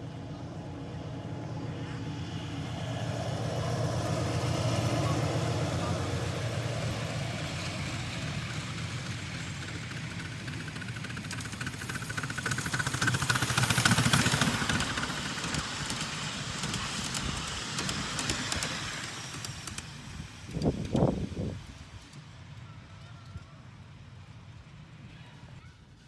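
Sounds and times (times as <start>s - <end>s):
miniature train rumbling past: 0.0s - 26.0s
wheels clicking over rails: 3.7s - 23.5s.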